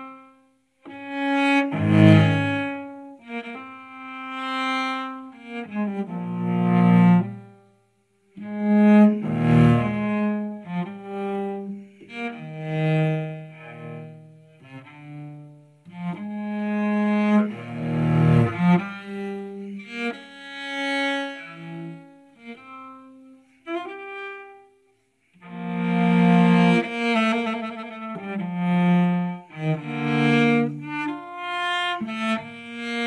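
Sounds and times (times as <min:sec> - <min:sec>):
solo cello: 0:00.0 - 0:33.0.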